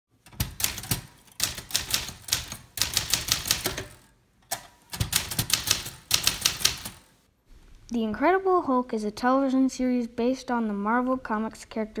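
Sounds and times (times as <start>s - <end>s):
typewriter keys clicking: 0.3s - 7.1s.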